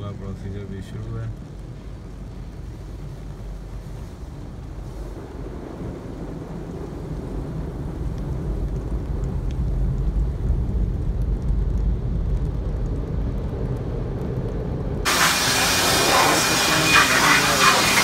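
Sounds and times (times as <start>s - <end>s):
car wash machinery rumble: 14.8s - 18.0s
loud steady hiss: 15.1s - 18.0s.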